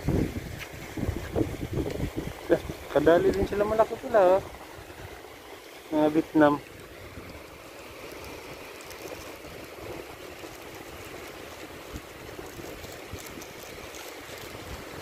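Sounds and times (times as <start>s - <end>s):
background hiss: 0.0s - 12.8s
plastic bag rustling: 8.0s - 15.0s.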